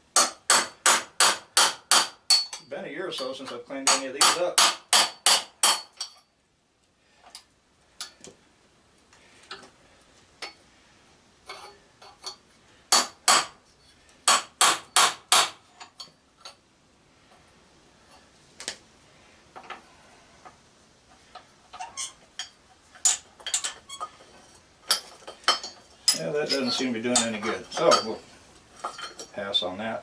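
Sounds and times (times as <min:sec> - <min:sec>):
hammer striking steel punch: 0:03.9 - 0:06.0.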